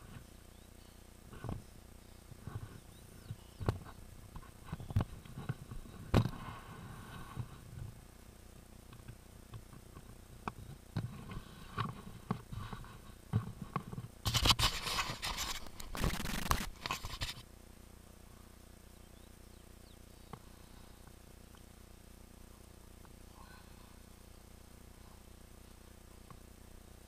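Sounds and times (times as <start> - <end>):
bike rattling over bumps: 9.0 - 17.4
bike tyres scraping dirt: 14.2 - 17.4.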